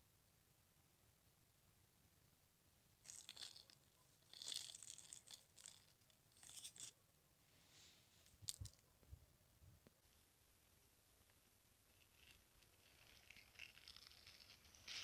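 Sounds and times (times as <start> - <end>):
rotten wood crackling on tarp: 12.6 - 15.0.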